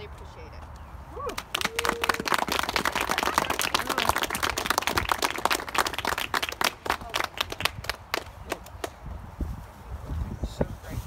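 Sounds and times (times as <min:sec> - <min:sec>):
audience applauding: 0:01.3 - 0:08.9.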